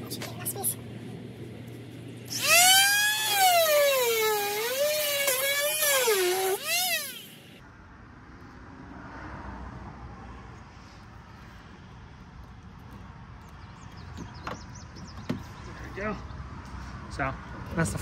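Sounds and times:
rotary tool whining while cutting: 2.3s - 7.6s.

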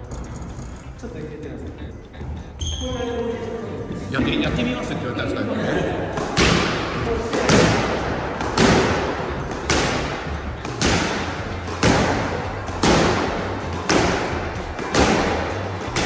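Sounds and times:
squash racket hitting ball: 6.1s - 16.0s.

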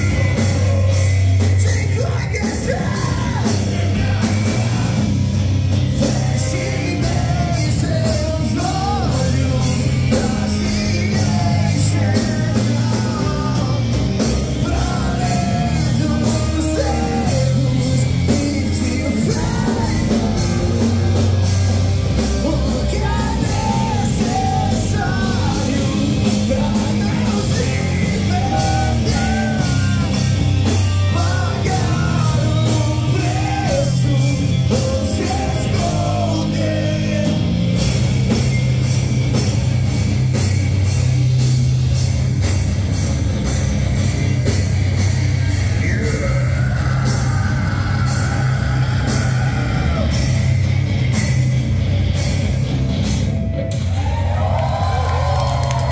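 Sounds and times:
person singing: 0.0s - 5.2s, 5.9s - 21.0s, 22.2s - 37.9s, 45.6s - 51.1s
heavy rock band playing: 0.0s - 55.9s.

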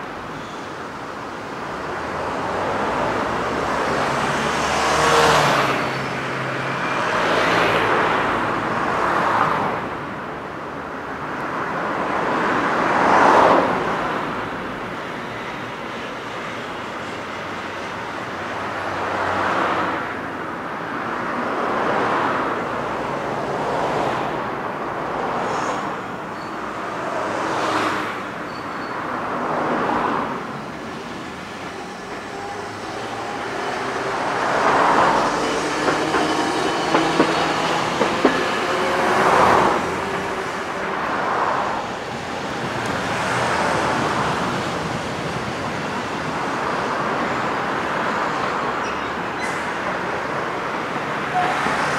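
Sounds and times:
streetcar motor whine: 30.5s - 46.4s
cars swishing past: 31.3s - 46.3s.

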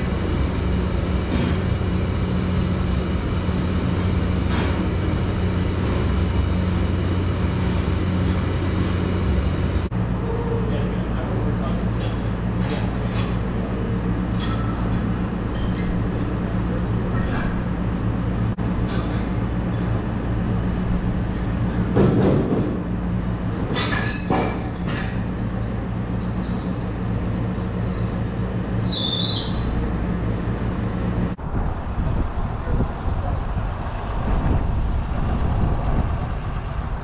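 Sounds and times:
engine running steadily: 0.0s - 37.0s
rough engine and vehicle noise: 0.0s - 37.0s
high wavering metal squeals: 23.7s - 31.4s.

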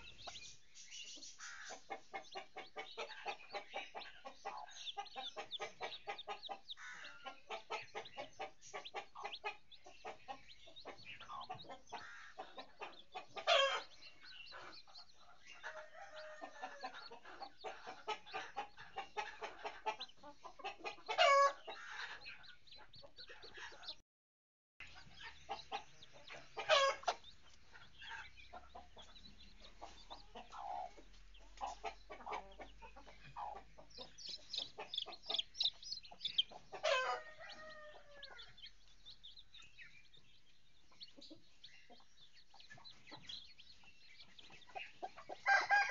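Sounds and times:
chicks peeping: 0.0s - 24.0s, 24.8s - 45.9s
hen clucking: 0.0s - 24.0s, 24.8s - 45.9s
hen loud drawn-out calls: 6.8s - 7.7s.

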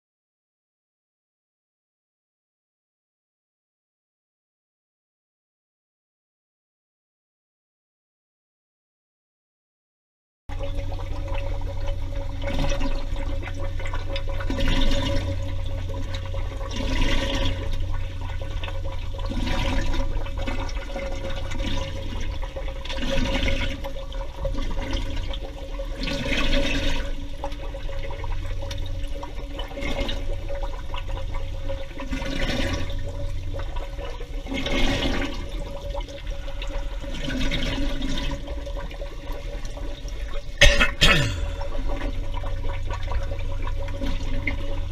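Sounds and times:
constant mid-pitched tone: 10.5s - 44.9s
steady low hum: 10.5s - 44.9s
underwater air bubbles gushing: 10.5s - 44.9s.

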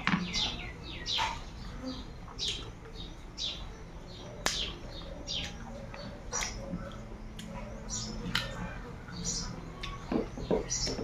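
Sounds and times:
small bird chirping: 0.0s - 11.0s
person chewing food: 5.4s - 9.0s.

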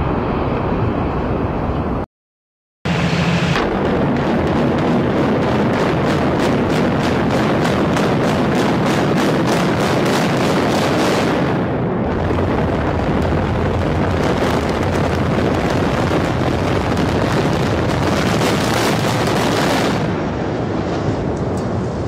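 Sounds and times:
loud rumble of collapsing structure: 2.9s - 22.0s
demolition charges cracking: 3.3s - 10.6s.

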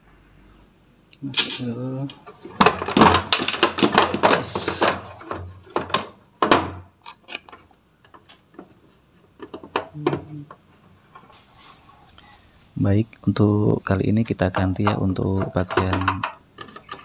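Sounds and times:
plastic panels knocking: 2.3s - 10.6s, 14.2s - 17.0s
short hiss: 11.3s - 12.8s.

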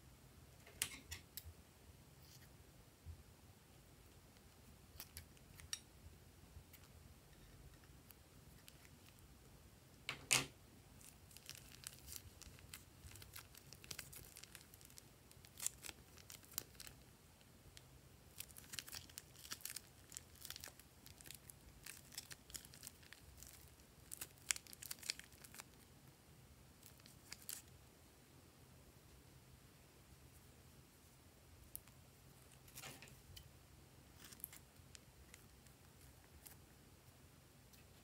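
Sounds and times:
plastic piping bag crinkling: 8.0s - 9.3s, 11.0s - 17.1s, 18.3s - 25.9s, 26.8s - 27.7s.

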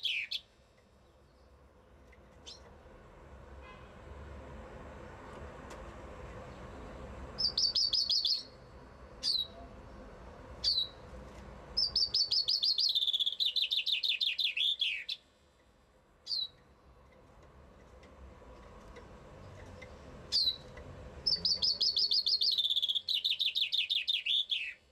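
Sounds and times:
chaffinch singing: 0.0s - 2.7s, 6.4s - 9.7s, 10.5s - 11.0s, 11.7s - 15.3s, 16.2s - 17.2s, 19.0s - 24.9s.

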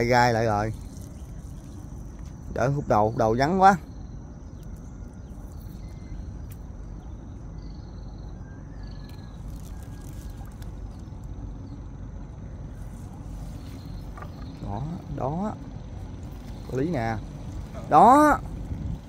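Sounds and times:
river water around boat: 0.0s - 19.0s
wind rumble: 0.0s - 19.0s
water trickling from net: 9.2s - 11.4s.

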